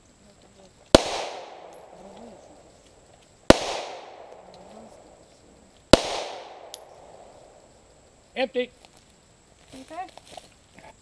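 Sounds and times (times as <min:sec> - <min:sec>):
pistol shots with echo: 0:00.9 - 0:02.4, 0:03.5 - 0:04.6, 0:05.9 - 0:07.5.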